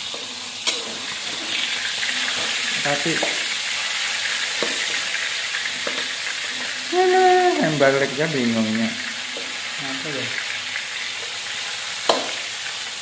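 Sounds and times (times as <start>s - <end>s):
metal spatula scraping a pan: 0.0s - 6.8s
fish sizzling in hot oil: 0.0s - 13.0s.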